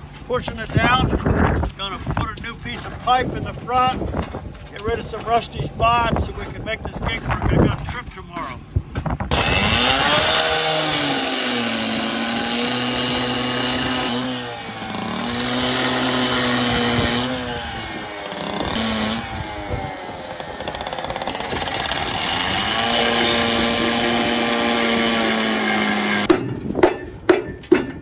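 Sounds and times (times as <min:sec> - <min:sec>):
cut-off saw engine: 0:09.3 - 0:26.3
abrasive wheel grinding steel: 0:09.3 - 0:28.0.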